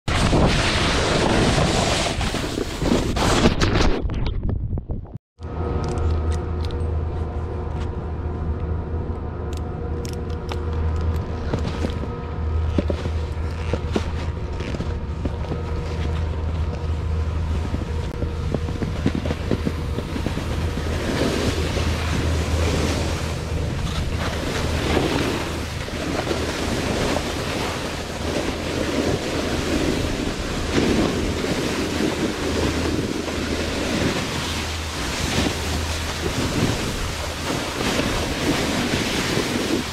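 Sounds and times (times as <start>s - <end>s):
snowboard sliding over snow: 0.1s - 3.7s, 11.4s - 39.9s
steady low rumble: 4.4s - 39.9s
wind buffeting microphone: 9.4s - 39.9s.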